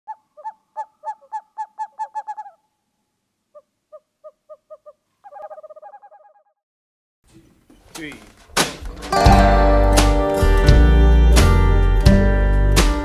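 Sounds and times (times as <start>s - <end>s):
owl hooting: 0.1s - 2.7s, 3.5s - 6.6s.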